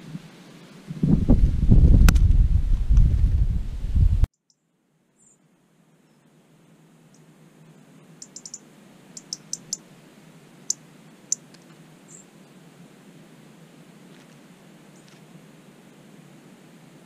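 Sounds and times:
thin bird chirp: 4.3 - 6.3, 8.1 - 9.8, 10.6 - 12.3
bird tic calls: 5.2 - 6.3, 7.9 - 9.9, 10.5 - 12.5, 14.8 - 15.2.

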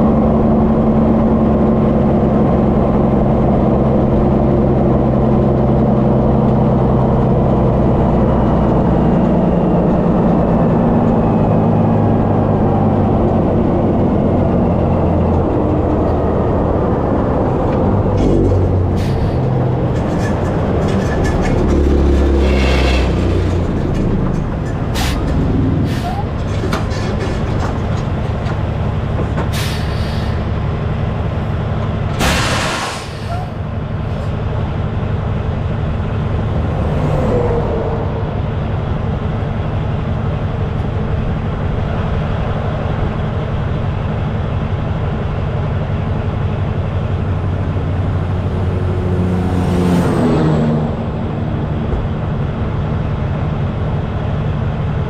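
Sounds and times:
diesel truck engine idling: 23.2 - 32.2.

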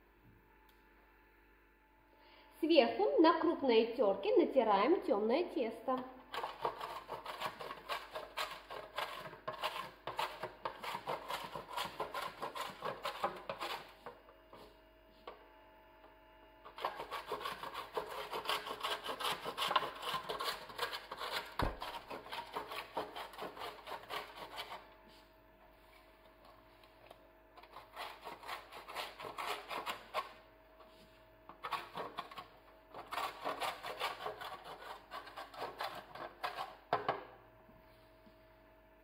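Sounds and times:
dough grated on metal grater: 6.2 - 14.7, 16.6 - 24.9, 27.6 - 30.4, 31.5 - 37.0.

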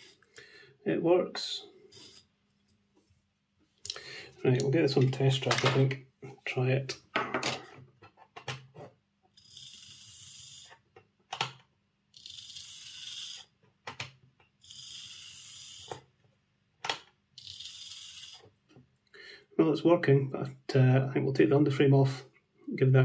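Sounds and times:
small motor whirring buzz: 9.4 - 10.8, 12.2 - 13.5, 14.6 - 16.0, 17.4 - 18.4.

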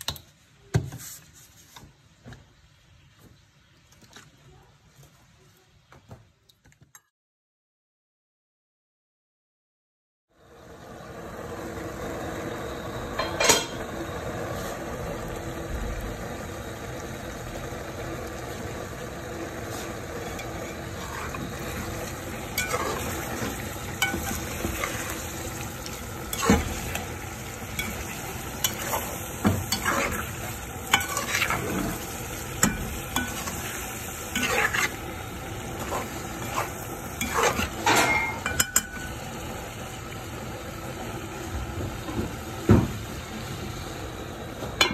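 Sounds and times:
food sizzling in a pan: 10.4 - 44.9
spatula scraping a pan: 19.7 - 39.0.

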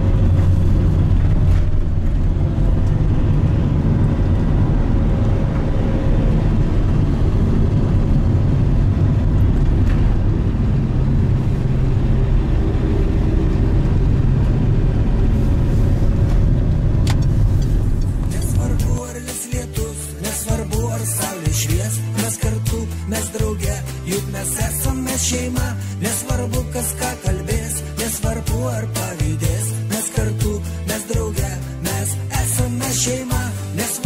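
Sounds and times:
car engine and tyre rumble: 0.0 - 19.2.

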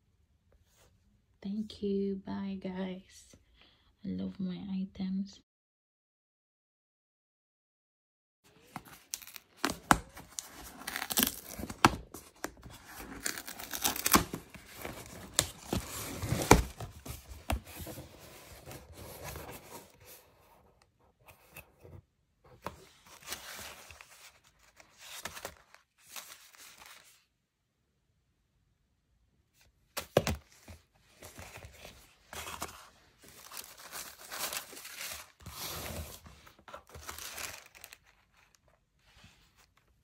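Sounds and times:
packaging crinkling and tearing: 8.7 - 17.0, 31.4 - 36.1, 36.7 - 38.6.

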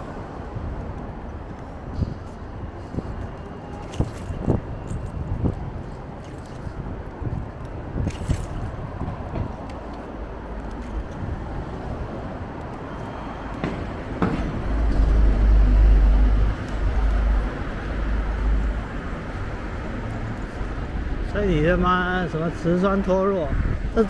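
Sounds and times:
city street traffic noise: 0.0 - 24.0.

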